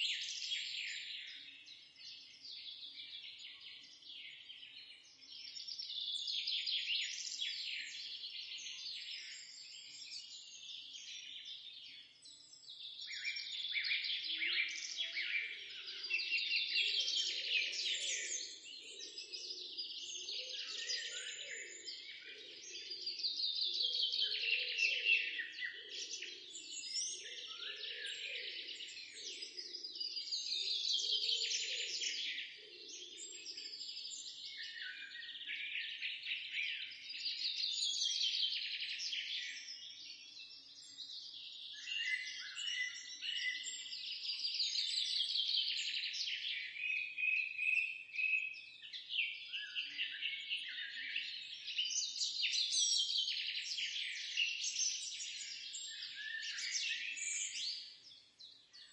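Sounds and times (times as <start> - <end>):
bird chirps: 12.0 - 58.9.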